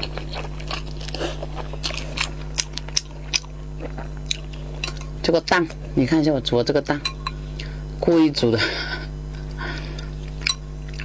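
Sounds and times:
person chewing noodles: 0.0s - 6.0s, 9.3s - 11.0s.

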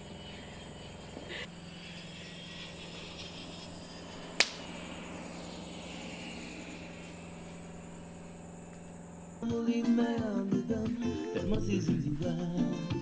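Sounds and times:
high-pitched insect drone: 0.0s - 13.0s
low hum: 0.0s - 13.0s
sharp click: 4.4s - 4.7s.

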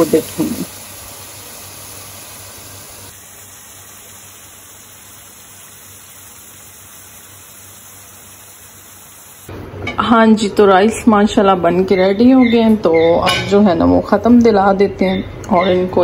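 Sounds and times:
onion and tomato frying: 0.0s - 16.0s.

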